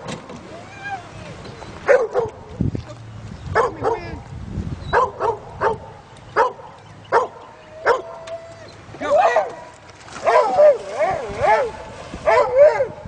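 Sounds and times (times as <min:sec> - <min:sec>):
dog barking: 0:01.9 - 0:02.3, 0:03.6 - 0:04.0, 0:04.9 - 0:05.8, 0:06.4 - 0:08.1, 0:10.2 - 0:12.9.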